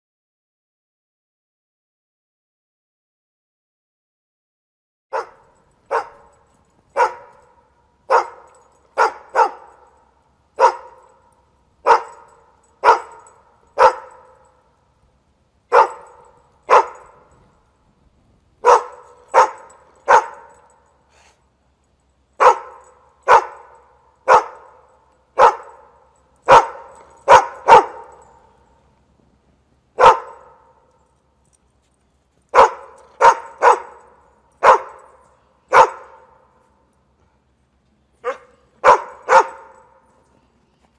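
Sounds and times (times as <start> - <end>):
dog barking: 5.1 - 10.0, 10.6 - 11.2, 11.8 - 14.5, 15.7 - 17.3, 18.6 - 20.7, 22.4 - 28.5, 30.0 - 30.8, 32.5 - 36.4, 38.2 - 40.0.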